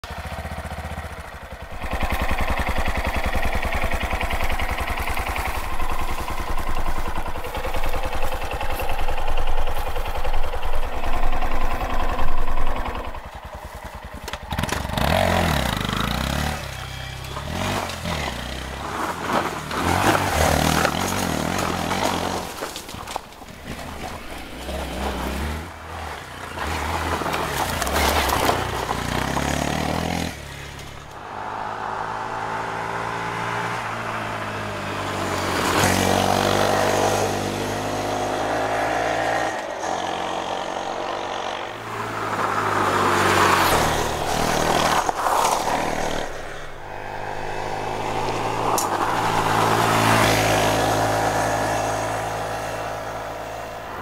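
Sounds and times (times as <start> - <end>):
motorcycle engine idling: 0.0 - 17.6
motorcycle engine revving: 0.0 - 22.9, 23.6 - 54.0.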